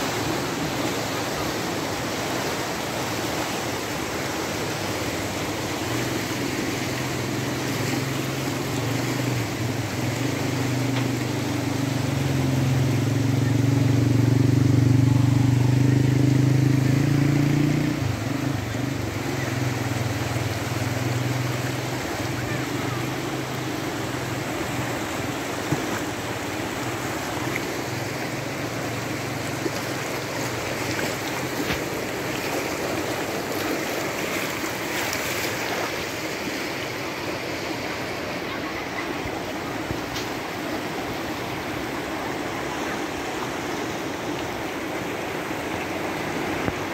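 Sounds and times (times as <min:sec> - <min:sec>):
floodwater rushing: 0:00.0 - 0:46.9
vehicle engine running: 0:08.2 - 0:32.2.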